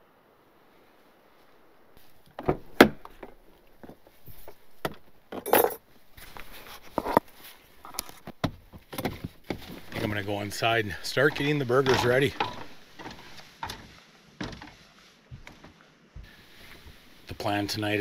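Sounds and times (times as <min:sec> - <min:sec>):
knocks clunks and clinks: 0:11.2 - 0:14.8.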